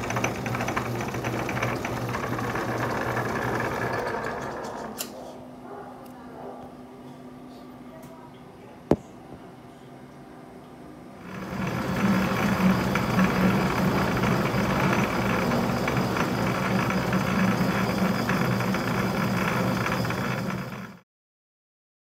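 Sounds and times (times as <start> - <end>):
metal lathe running: 0.0 - 5.0, 11.2 - 21.0.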